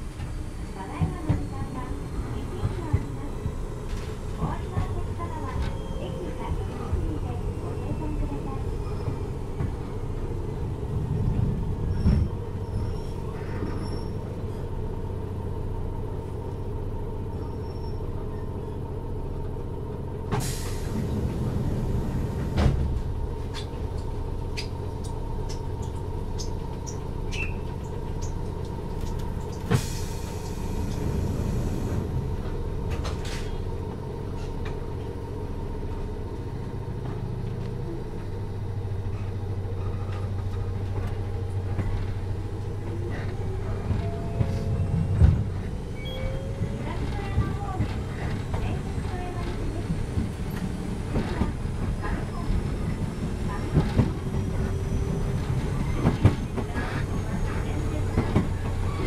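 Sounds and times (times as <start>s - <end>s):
train doors knocking shut: 11.0s - 12.8s, 20.3s - 23.6s, 42.6s - 54.8s
air hiss from train doors: 20.3s - 23.0s, 29.6s - 32.2s.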